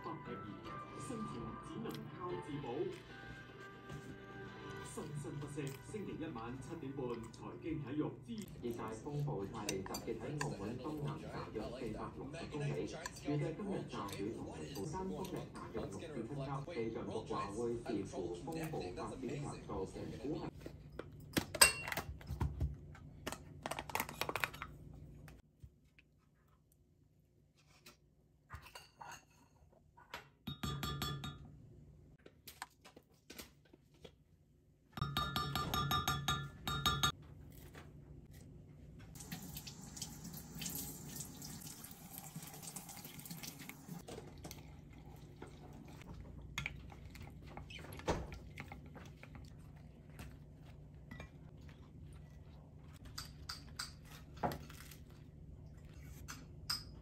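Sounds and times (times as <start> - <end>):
dishes knocking and clinking: 28.6 - 31.6, 35.0 - 37.2, 56.2 - 57.0.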